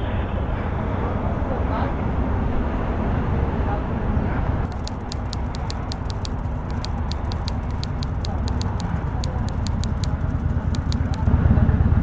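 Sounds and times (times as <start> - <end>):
smartphone keyboard taps: 4.7 - 11.3.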